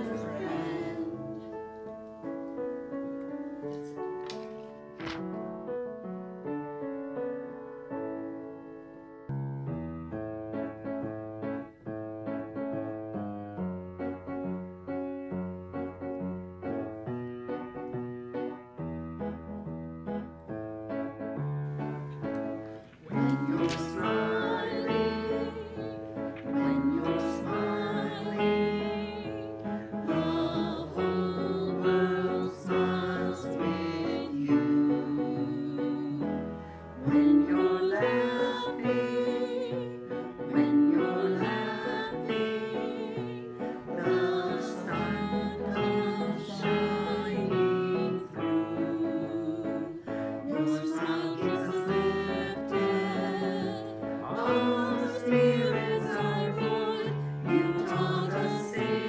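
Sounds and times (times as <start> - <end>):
group of people singing: 0.0 - 1.6, 23.1 - 59.0.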